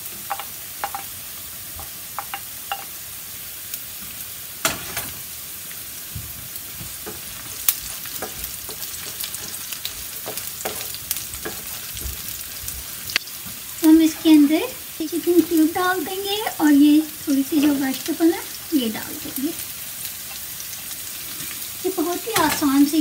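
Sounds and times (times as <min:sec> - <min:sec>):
onion sizzling in oil: 0:00.0 - 0:23.0
wooden spoon scraping a pan: 0:06.7 - 0:14.6.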